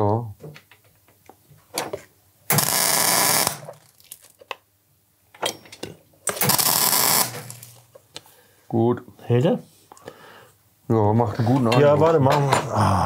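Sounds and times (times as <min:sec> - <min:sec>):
electric arc welding: 0:02.5 - 0:04.1, 0:06.3 - 0:07.8.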